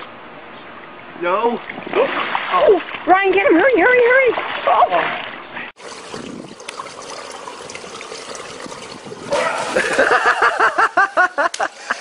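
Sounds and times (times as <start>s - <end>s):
person laughing: 9.3s - 12.0s.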